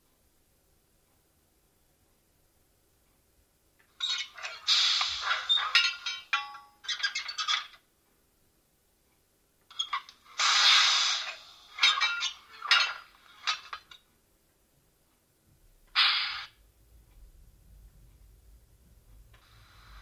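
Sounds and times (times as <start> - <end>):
air hiss: 4.6 - 5.6, 10.3 - 12.0, 16.0 - 16.6, 19.4 - 20.0.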